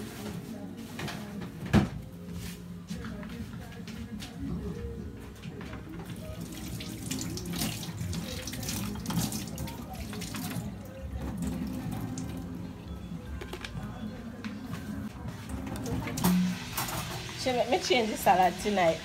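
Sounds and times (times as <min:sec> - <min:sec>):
tap water running into sink: 0:06.2 - 0:12.4.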